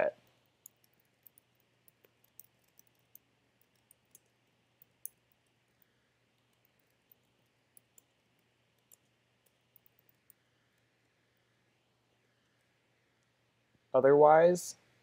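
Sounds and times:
faint keyboard typing: 0.1s - 10.9s.

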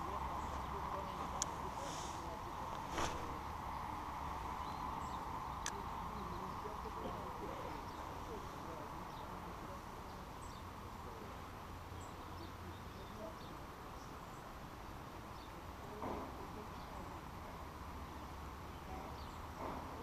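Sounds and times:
faint hiss and low rumble: 0.0s - 20.0s.

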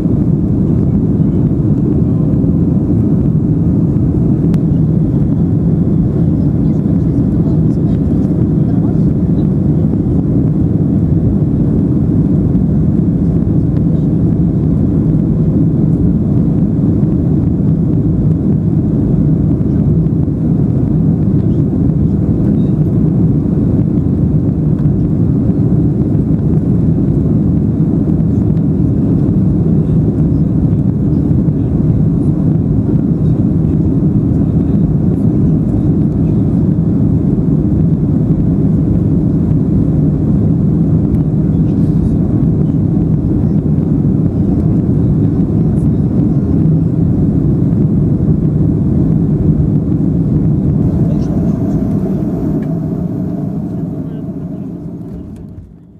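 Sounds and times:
aeroplane engines roaring: 0.0s - 55.9s
air rushing past: 50.7s - 55.8s.

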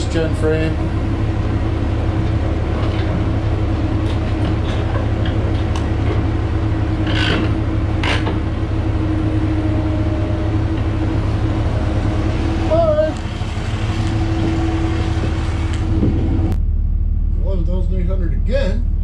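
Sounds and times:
heavy engine running: 0.0s - 19.0s.

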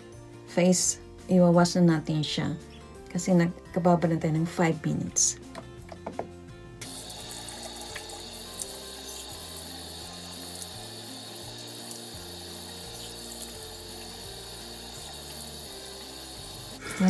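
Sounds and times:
soft background music: 0.0s - 17.0s
tap water running into sink: 6.8s - 16.8s.

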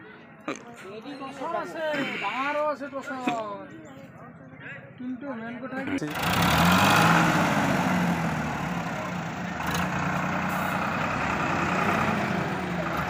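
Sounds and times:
tractor diesel engine under load: 5.8s - 13.0s.

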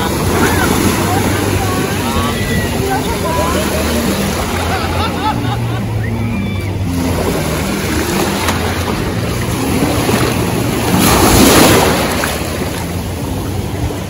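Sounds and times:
seawater sloshing and splashing: 6.8s - 14.0s.

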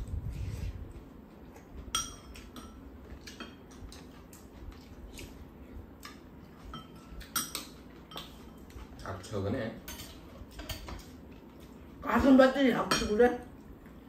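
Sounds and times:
utensils clinking on ceramic bowls: 1.9s - 3.6s, 6.6s - 11.1s, 12.8s - 13.3s.

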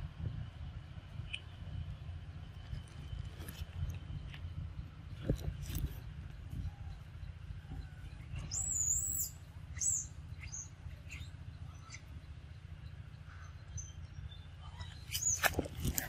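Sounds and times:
steady low hum: 0.0s - 16.0s
bird calling: 6.6s - 16.0s.

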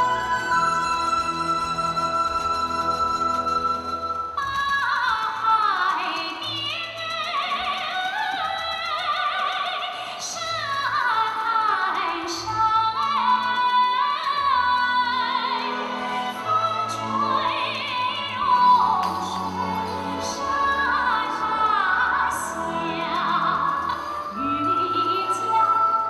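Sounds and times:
woman singing with vibrato: 0.0s - 2.4s, 4.4s - 26.0s
bass and orchestral backing: 0.0s - 5.1s, 12.4s - 26.0s.

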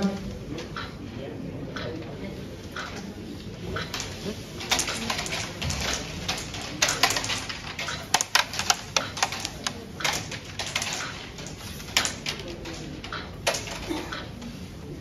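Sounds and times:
carrom pieces clacking on board: 3.7s - 14.5s.

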